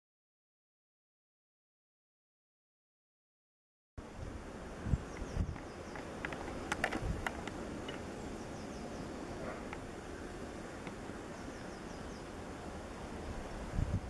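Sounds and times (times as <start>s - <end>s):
wind buffets on microphone: 4.1s - 7.9s, 13.2s - 14.0s
faint high bird chirps: 5.0s - 6.1s, 8.2s - 9.7s, 11.3s - 12.4s
sharp clicks: 5.2s - 8.0s
wind rushing: 13.1s - 14.0s.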